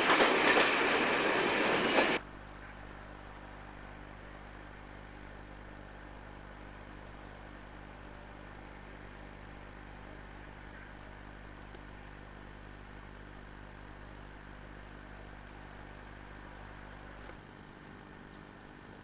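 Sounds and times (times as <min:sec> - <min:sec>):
diesel locomotive idling: 0:00.0 - 0:02.2.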